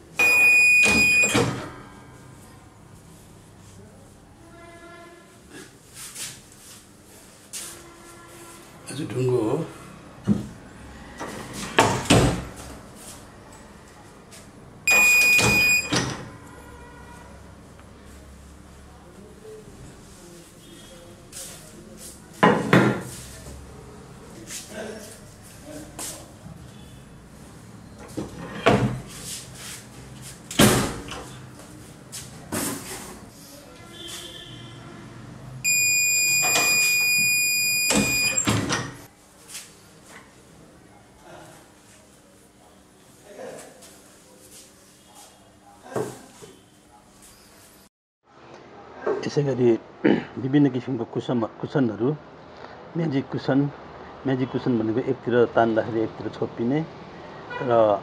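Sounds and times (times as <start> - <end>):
timer beep: 0.2 - 1.4, 14.9 - 15.9, 35.7 - 38.5.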